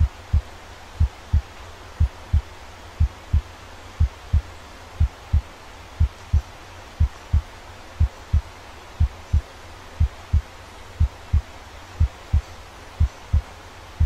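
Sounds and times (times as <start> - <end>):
heartbeat thumps: 0.0 - 13.5
faint steady hiss: 0.0 - 14.0.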